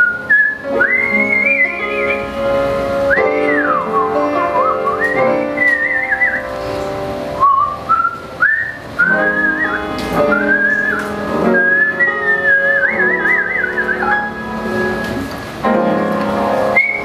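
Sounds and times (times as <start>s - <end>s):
woman whistling a melody: 0.0s - 2.4s, 3.1s - 6.6s, 7.4s - 15.1s, 16.7s - 17.0s
big band chords: 8.2s - 17.0s.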